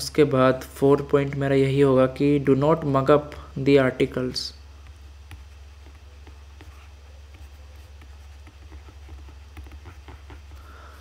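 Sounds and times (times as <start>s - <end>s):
steady low hum: 0.0s - 11.0s
stylus tapping and scratching: 4.8s - 10.6s.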